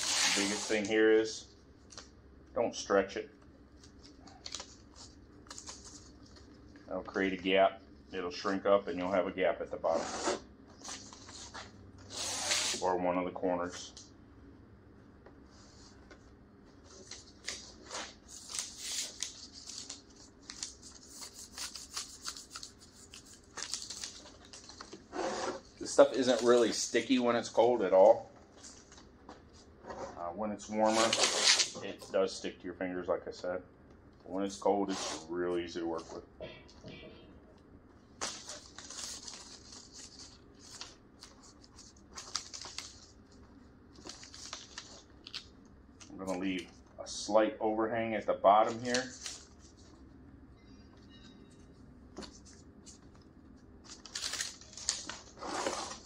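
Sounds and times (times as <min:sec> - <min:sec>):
paper liner peeling and crackling: 0:16.9 - 0:26.8, 0:38.2 - 0:46.4.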